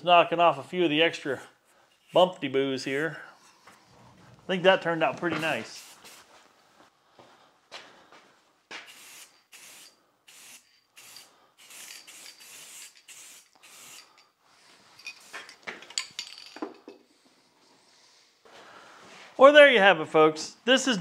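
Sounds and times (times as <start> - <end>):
spray paint can hissing: 8.8 - 14.1.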